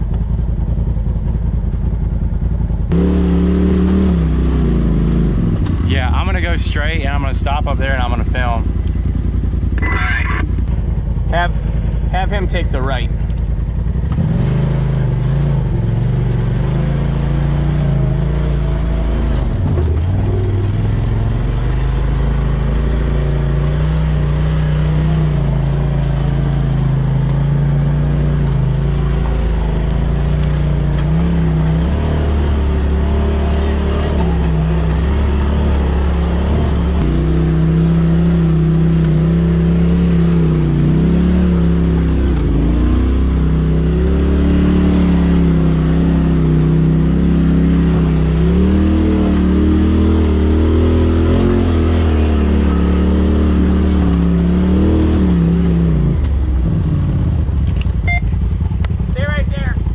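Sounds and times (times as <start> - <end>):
off-road vehicle engine running: 0.0 - 59.9.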